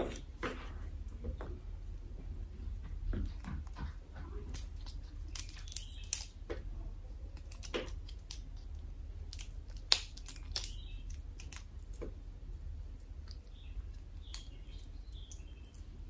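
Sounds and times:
low steady hum: 0.0 - 16.0
crab shell cracking: 4.5 - 6.6, 7.3 - 16.0.

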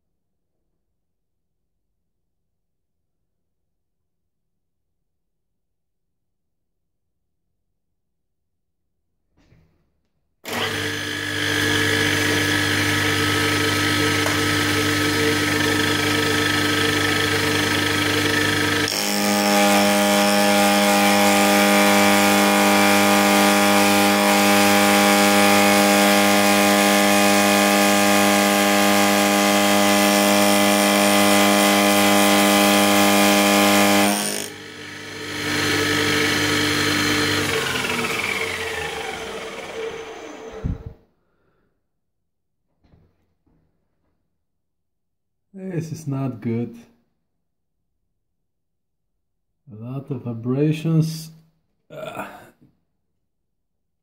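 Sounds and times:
milling cutter cutting steel: 10.5 - 40.9.

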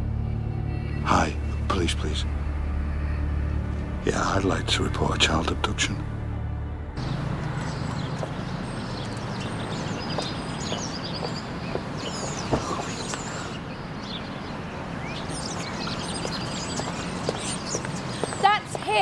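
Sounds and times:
birds chirping: 6.9 - 19.0.

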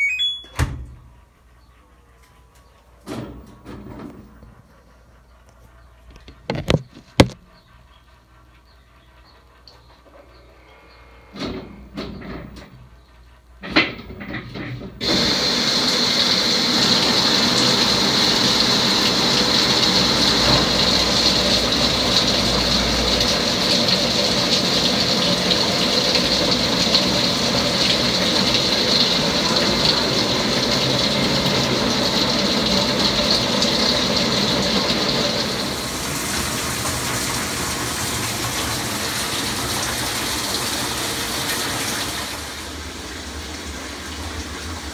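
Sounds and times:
water gushing into washer drum: 11.4 - 44.9.

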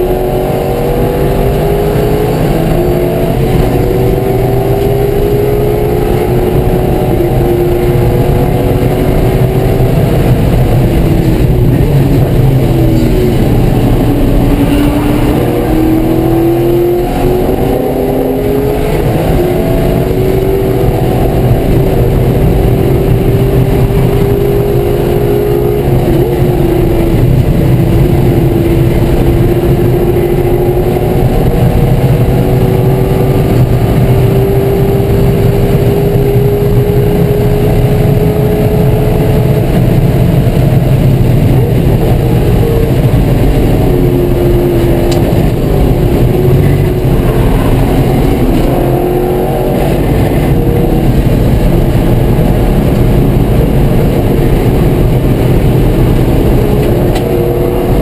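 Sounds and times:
race car engine running hard: 0.0 - 58.0.

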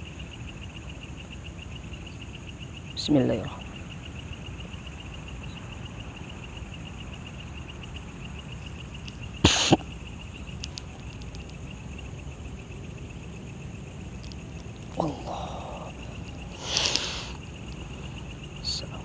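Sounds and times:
crickets chirping: 0.0 - 19.0
low background rumble: 0.0 - 19.0
loud burst of noise: 9.4 - 9.8.

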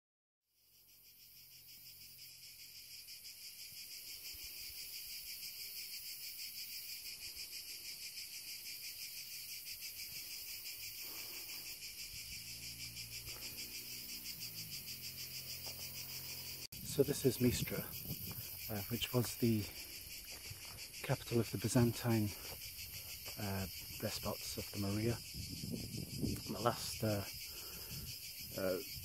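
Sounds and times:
cicadas buzzing: 0.6 - 29.0.

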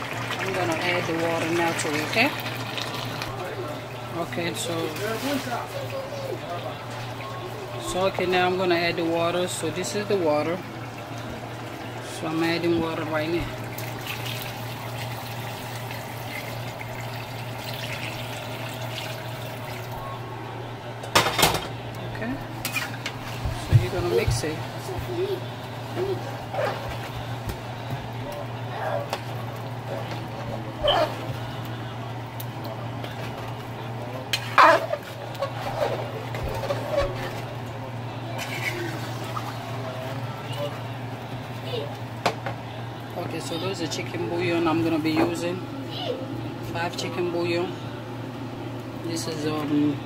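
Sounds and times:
water pouring into a pot: 0.0 - 4.1, 13.5 - 20.0.

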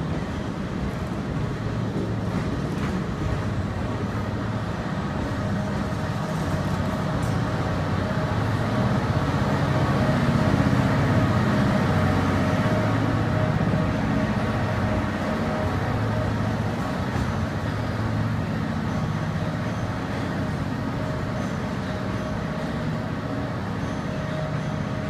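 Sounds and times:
train coaches rolling past: 0.0 - 25.0
train wheel noise and hum: 0.0 - 25.0.

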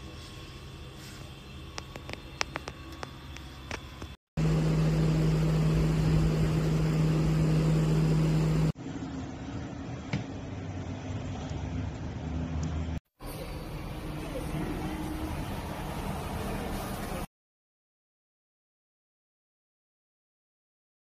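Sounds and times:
electric fan running: 2.6 - 17.3.

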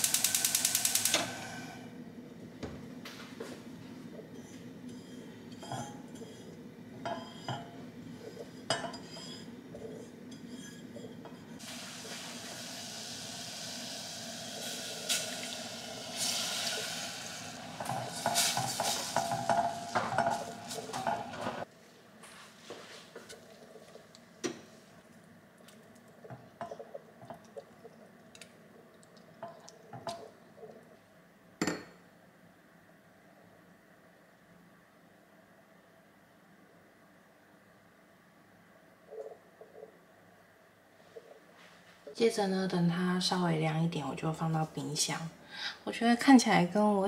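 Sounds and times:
spatula scraping and clinking pan: 4.4 - 11.6, 17.8 - 21.7
liquid poured into hot pan: 11.6 - 20.7.

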